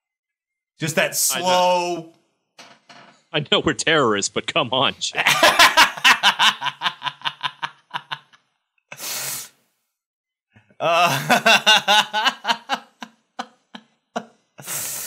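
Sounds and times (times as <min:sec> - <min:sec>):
men laughing: 0:05.1 - 0:09.1, 0:10.8 - 0:13.8.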